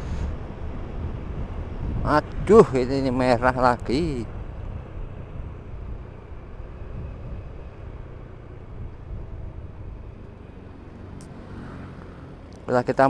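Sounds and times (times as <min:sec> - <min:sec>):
wind rumbling on microphone: 0:00.0 - 0:11.3.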